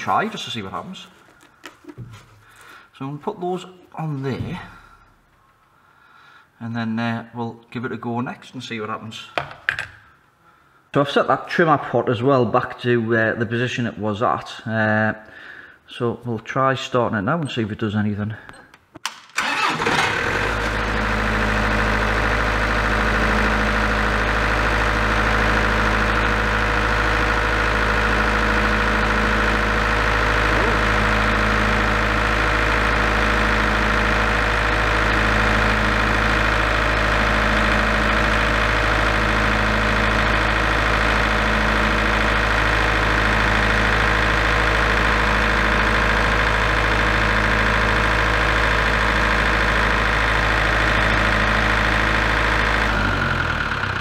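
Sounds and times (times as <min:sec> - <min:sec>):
diesel generator engine running: 0:00.0 - 0:00.8, 0:19.4 - 0:54.0.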